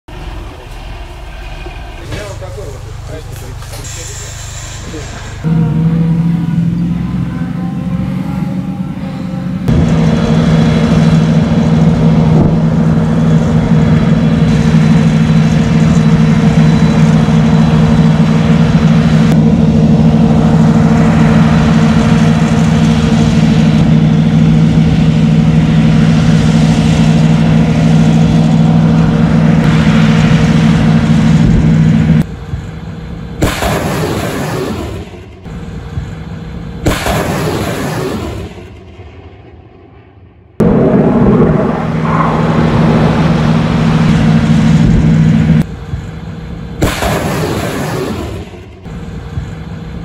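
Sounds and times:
truck engine running: 0.1s - 39.9s, 40.6s - 50.0s.

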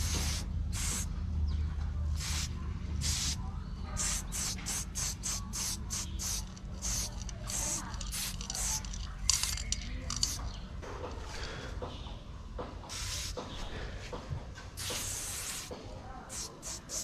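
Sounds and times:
spray bottle squirts: 4.0s - 10.4s, 14.8s - 15.7s.

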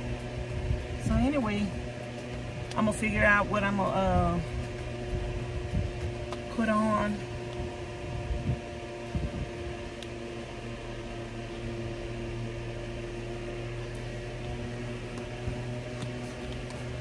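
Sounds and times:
steady mechanical hum: 0.0s - 17.0s.

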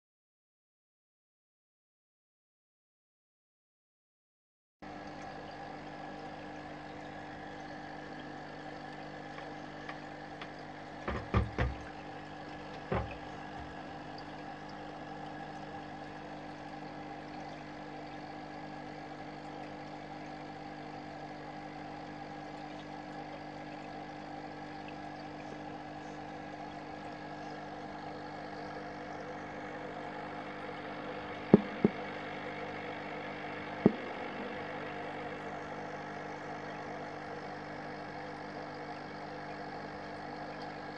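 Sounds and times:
electric machine humming: 4.9s - 40.9s
short knocks: 11.0s - 11.9s, 12.8s - 13.7s, 31.6s - 32.0s.

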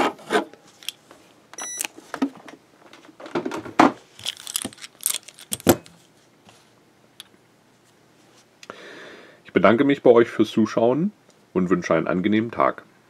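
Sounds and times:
short beep: 1.6s - 1.9s
handcuffs clinking and clanking: 4.2s - 5.9s.

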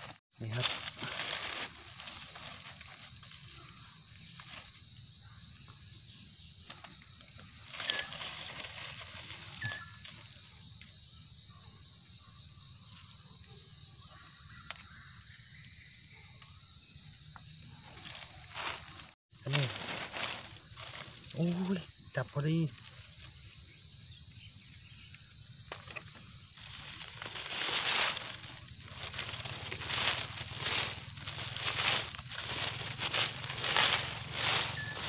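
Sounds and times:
rustling dry leaf litter: 0.0s - 5.0s, 6.7s - 10.6s, 17.8s - 22.0s, 25.7s - 35.0s
high-pitched insect drone: 0.0s - 35.0s.

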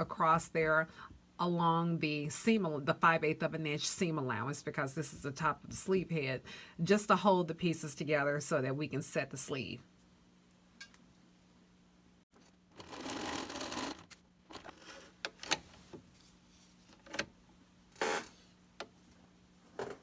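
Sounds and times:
sewing machine stitching: 12.7s - 15.6s.

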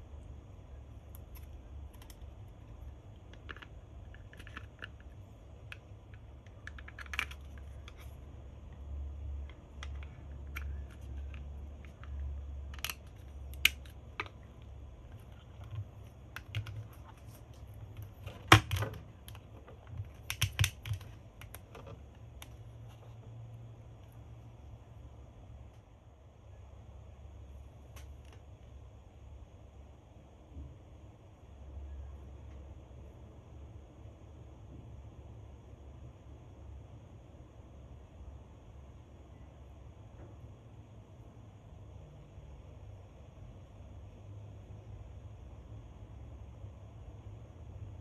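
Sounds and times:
sharp plastic click: 18.3s - 22.6s.

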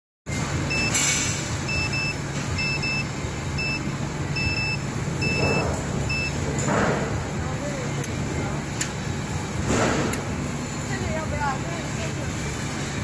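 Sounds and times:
low machine hum: 0.3s - 13.0s
electronic key beeps: 1.7s - 6.4s.

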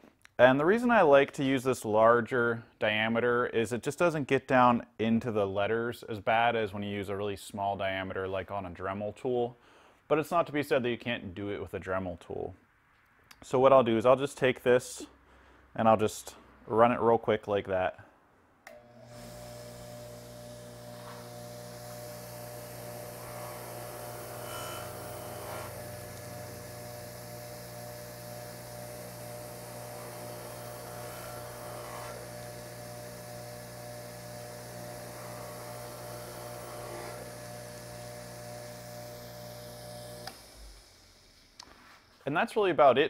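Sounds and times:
buffer motor hum: 18.7s - 42.2s.

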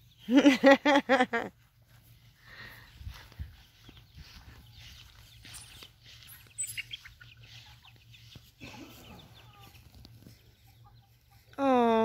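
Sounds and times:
high chick chirps: 1.6s - 11.6s
chickens clucking softly: 3.5s - 11.5s.

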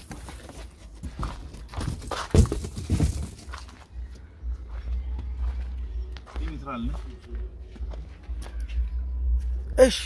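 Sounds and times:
footsteps on dirt: 0.0s - 9.8s.

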